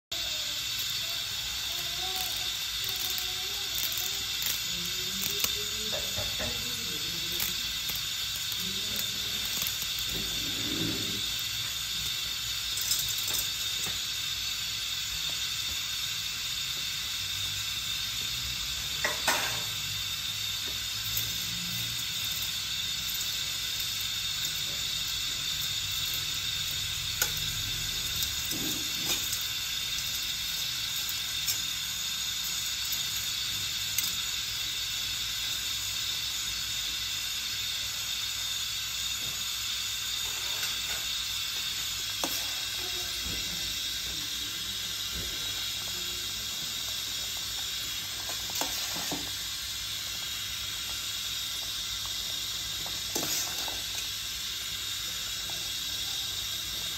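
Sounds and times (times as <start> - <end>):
pot boiling on gas burner: 0.0 - 56.9.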